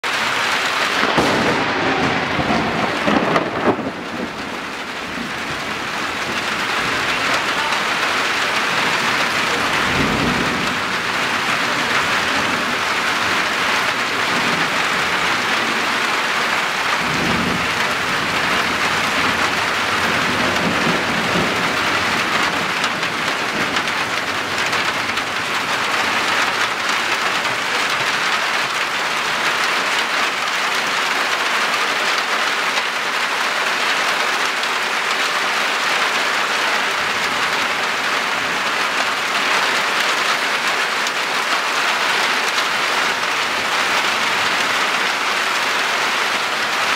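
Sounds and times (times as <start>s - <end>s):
heavy rain pouring: 0.0s - 46.9s
low thunder rumbles: 0.5s - 28.4s.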